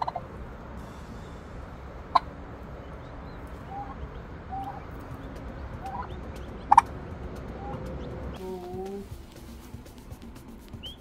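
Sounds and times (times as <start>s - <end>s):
turkey hen calling: 0.0s - 0.3s, 1.2s - 9.0s
poults peeping: 0.0s - 0.5s, 1.2s - 9.1s, 10.8s - 11.0s.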